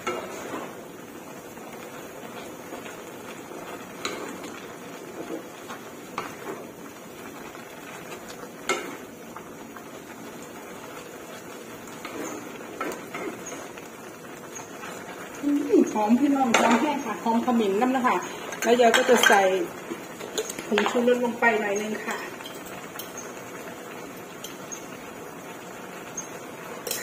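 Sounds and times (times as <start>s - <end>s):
spatula scraping in a wok: 0.0s - 1.0s, 11.1s - 13.8s, 26.2s - 27.0s.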